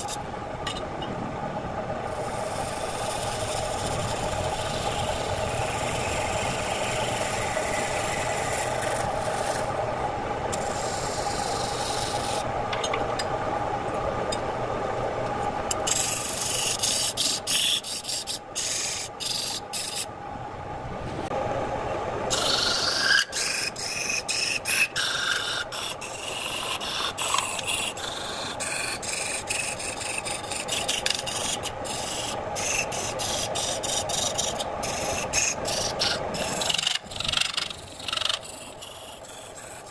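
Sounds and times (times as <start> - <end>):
tool scraping spinning wood: 2.1 - 9.8, 15.7 - 20.1, 22.3 - 39.9
wood lathe humming: 2.1 - 9.8, 22.3 - 39.9.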